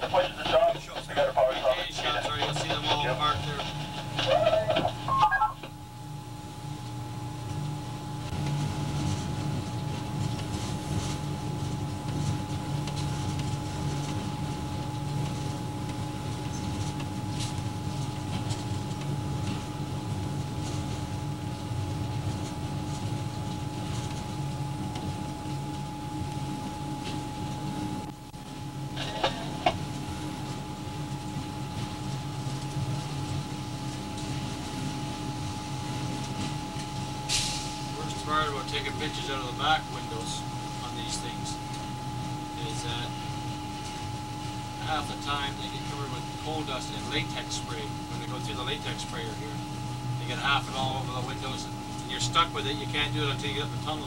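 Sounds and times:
locomotive cab rumble: 0.0 - 5.7
locomotive cab rumble and hum: 0.0 - 54.0.

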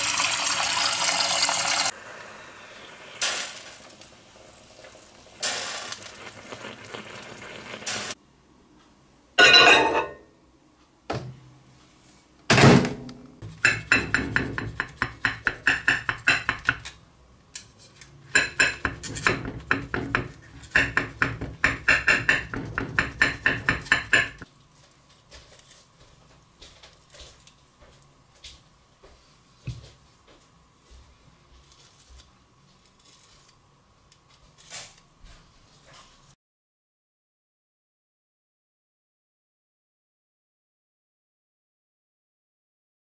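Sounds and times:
dishes knocking: 9.4 - 10.2, 13.5 - 16.8, 18.3 - 24.4.

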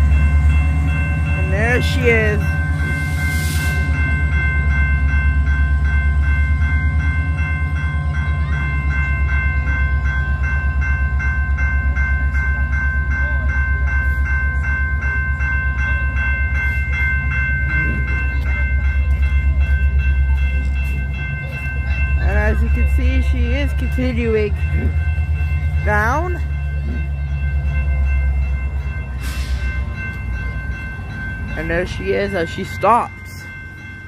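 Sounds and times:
diesel locomotive rumble: 0.0 - 34.0
level crossing bell ringing: 0.0 - 34.0.

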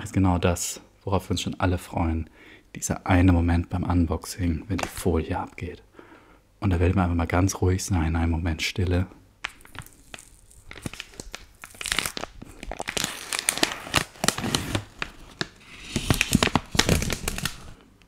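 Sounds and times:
plastic film peeling and crinkling: 9.4 - 17.8.

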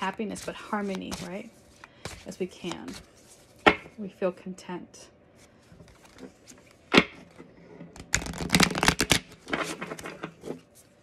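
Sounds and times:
cards being shuffled: 0.0 - 3.8, 8.0 - 11.0.

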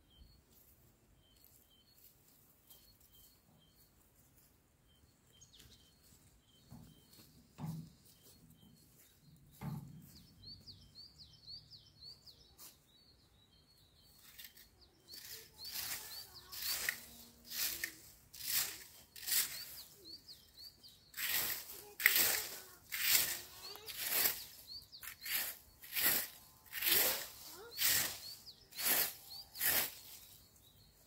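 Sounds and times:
small birds chirping: 0.0 - 31.0
rake scratching dry leaves: 14.2 - 31.0.

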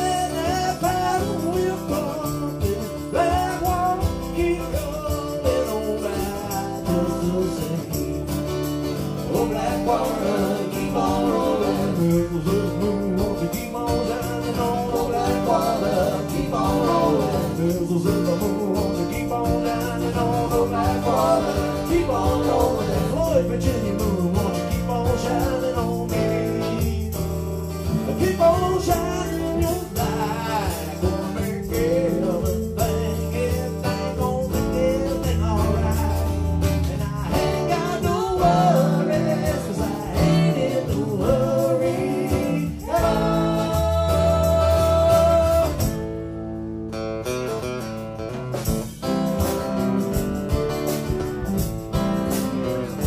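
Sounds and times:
live band playing: 0.0 - 53.0
person singing: 9.3 - 27.3, 28.0 - 46.0.

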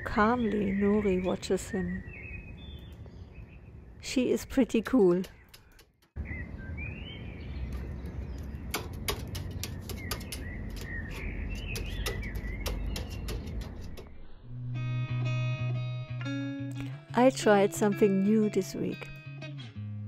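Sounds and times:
small birds chirping: 0.0 - 14.2
crow's beak tapping metal roof: 4.4 - 6.2, 8.4 - 14.2
plucked guitar music: 14.5 - 20.0.

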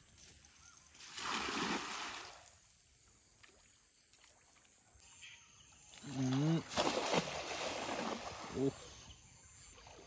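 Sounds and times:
net splashing into water: 1.0 - 2.4, 6.6 - 8.5.

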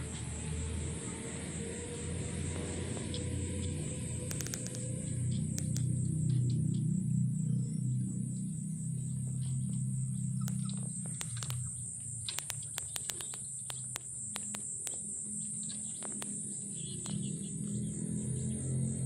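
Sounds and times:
high insect-like whine: 0.0 - 19.0
sharp clicks: 4.0 - 6.0, 10.4 - 17.3.

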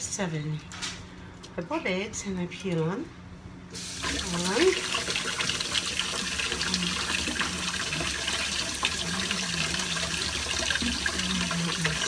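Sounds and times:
faucet running into a steel sink: 3.8 - 12.0.

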